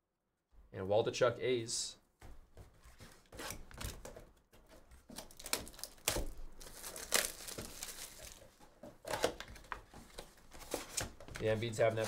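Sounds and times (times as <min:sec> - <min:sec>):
shrink wrap tearing and crinkling: 0:05.0 - 0:12.0.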